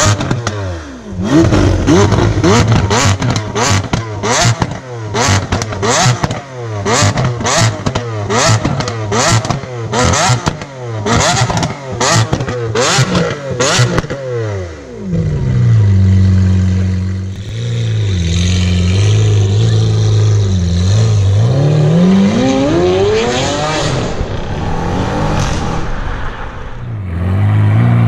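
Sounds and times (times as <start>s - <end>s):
car engine revving with crackles: 0.0s - 28.0s
car engine idling: 14.8s - 21.2s.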